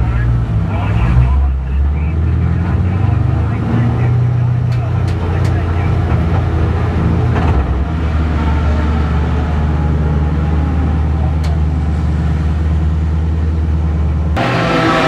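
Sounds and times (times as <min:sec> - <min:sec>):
car engine running low: 0:00.0 - 0:15.0.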